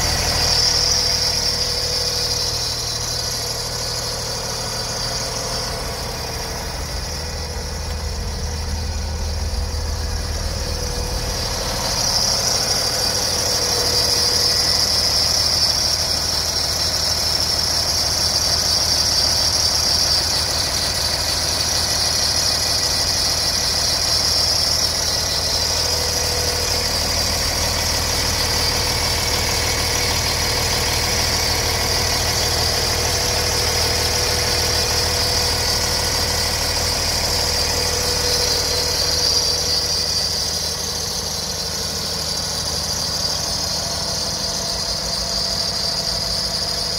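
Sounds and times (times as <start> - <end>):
high whine: 0.0 - 16.5, 34.5 - 46.9
diesel engine idling: 0.0 - 46.9.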